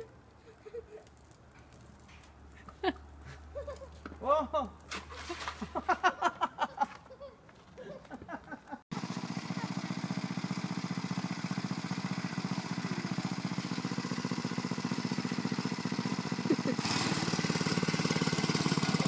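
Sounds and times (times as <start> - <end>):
go-kart engine idling: 8.9 - 19.0.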